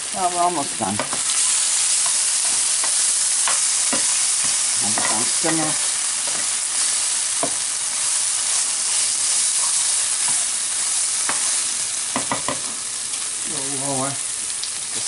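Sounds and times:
sauce sizzling in frying pan: 0:00.0 - 0:15.0.

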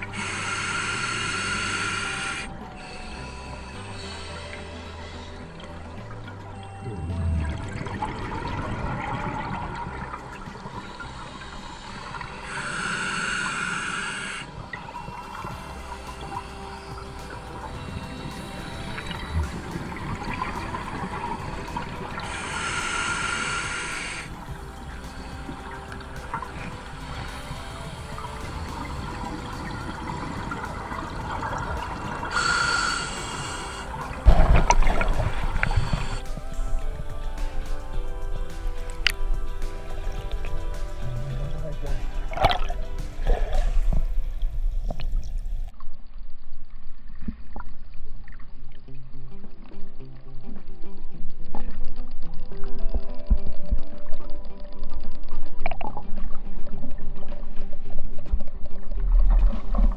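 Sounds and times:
regulator inhalation hiss: 0:00.0 - 0:05.5, 0:10.9 - 0:44.3
exhaled bubbles burbling underwater: 0:05.7 - 0:12.7, 0:14.3 - 0:36.9, 0:40.0 - 0:46.0.

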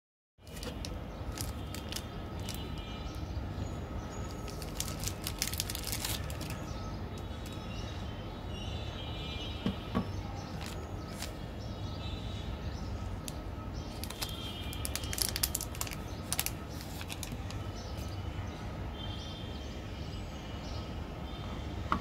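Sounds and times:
plastic wrapper crinkling and tearing: 0:00.4 - 0:02.8, 0:04.3 - 0:07.6, 0:10.5 - 0:11.4, 0:13.2 - 0:18.1.

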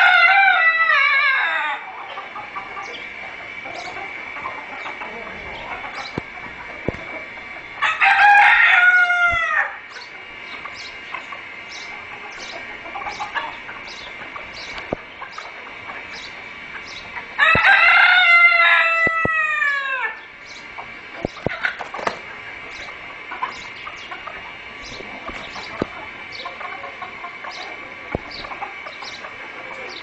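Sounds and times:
rooster crowing: 0:00.0 - 0:02.0, 0:07.8 - 0:09.9, 0:17.4 - 0:20.2
chickens clucking: 0:00.0 - 0:30.0.

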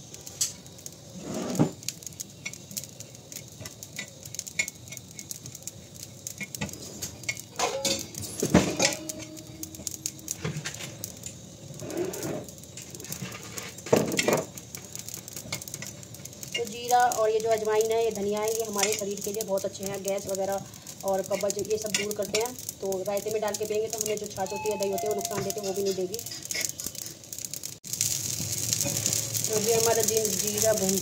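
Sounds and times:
metal spoon scraping seeds in pan: 0:00.4 - 0:11.0, 0:15.3 - 0:27.4.

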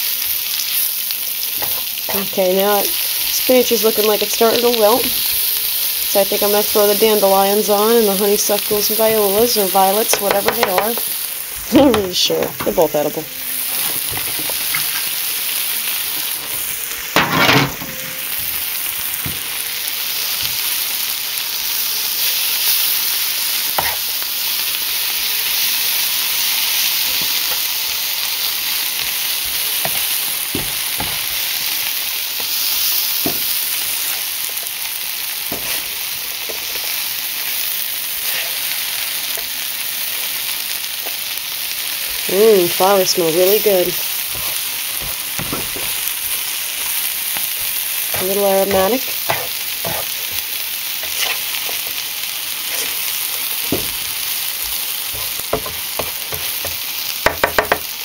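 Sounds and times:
greens sizzling in frying pan: 0:00.0 - 0:58.0
stirring utensil taps: 0:10.1 - 0:11.1.

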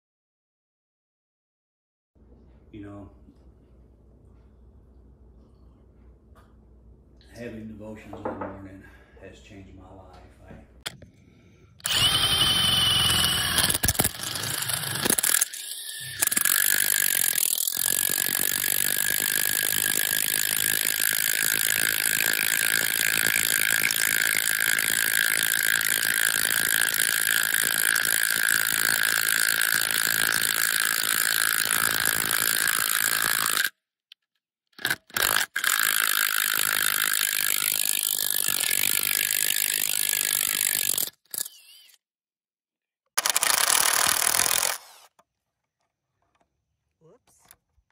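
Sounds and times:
power tool whining: 0:11.8 - 0:33.7, 0:34.8 - 0:42.0, 0:43.2 - 0:45.2.

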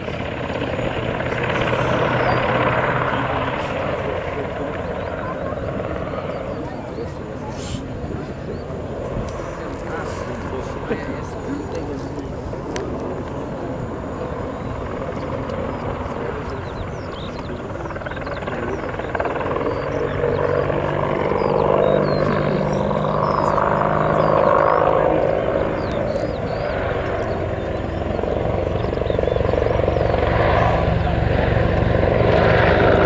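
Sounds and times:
helicopter rotor drone: 0:00.0 - 0:33.0.

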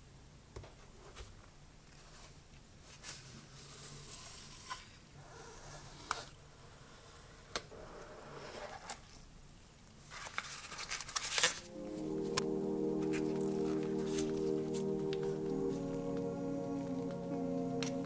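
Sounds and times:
card and paper rustling: 0:10.0 - 0:11.7.

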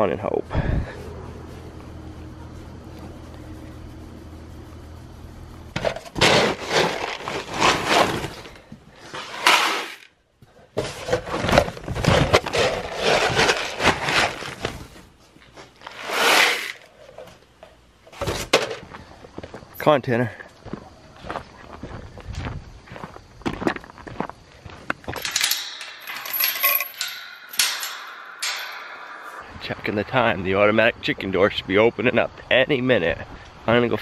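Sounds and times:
steady low hum: 0:00.0 - 0:09.0
rustling and scraping of sack: 0:05.7 - 0:17.2
pellets pouring into bucket: 0:15.9 - 0:16.8.

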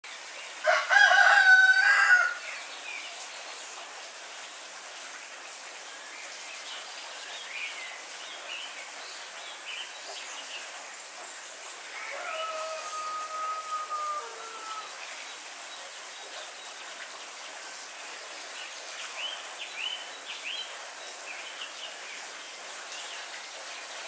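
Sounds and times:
steady rain: 0:00.0 - 0:24.0
rooster crowing: 0:00.6 - 0:02.4, 0:11.9 - 0:14.9.

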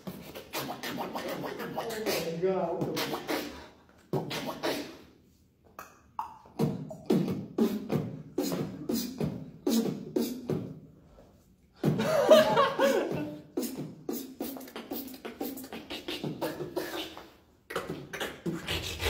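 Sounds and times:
gliding pitched vocal sounds: 0:00.0 - 0:05.2, 0:11.8 - 0:19.0
beatboxing: 0:00.0 - 0:19.0.

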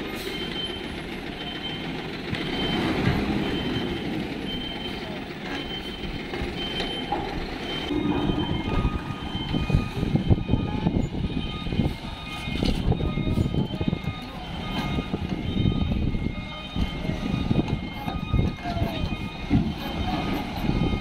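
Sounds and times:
diesel engine running: 0:00.0 - 0:21.0
truck reversing beeper: 0:00.0 - 0:21.0.

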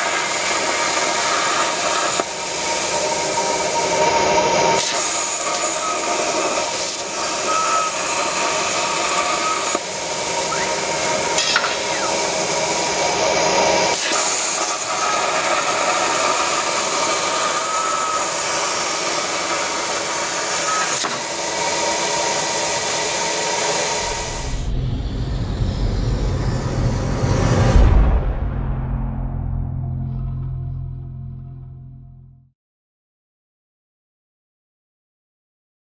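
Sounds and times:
plasma arc hissing: 0:00.0 - 0:24.7
faint whine: 0:24.0 - 0:32.4
low rumble: 0:24.2 - 0:32.5.

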